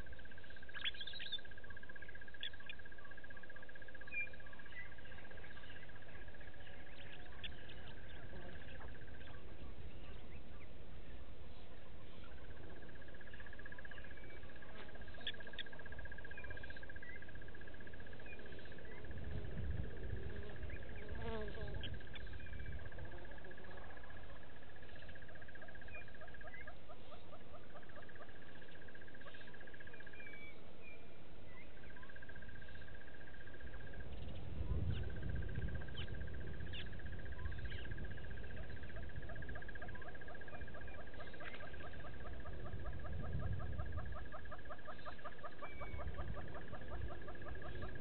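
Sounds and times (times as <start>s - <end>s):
high pulsed insect trill: 0.0s - 48.0s.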